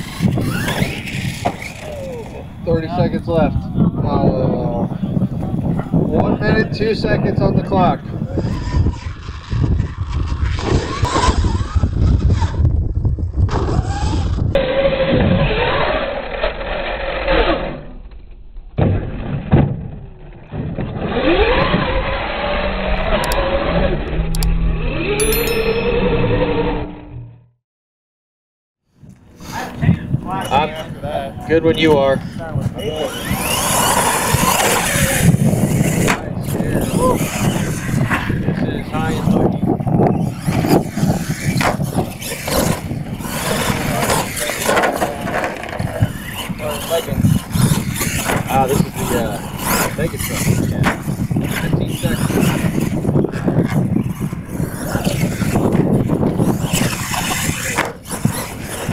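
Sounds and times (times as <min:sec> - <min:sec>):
electric motor whining: 0:00.0 - 0:03.0, 0:32.2 - 0:58.9
people talking: 0:01.6 - 0:08.6, 0:29.5 - 0:39.8, 0:42.6 - 0:53.6, 0:54.6 - 0:55.8.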